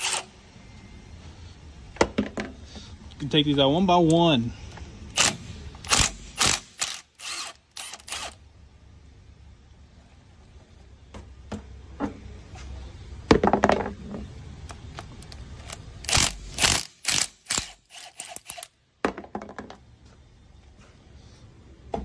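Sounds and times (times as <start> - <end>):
impact wrench bursts: 0.0 - 0.3, 5.1 - 8.4, 15.6 - 18.7.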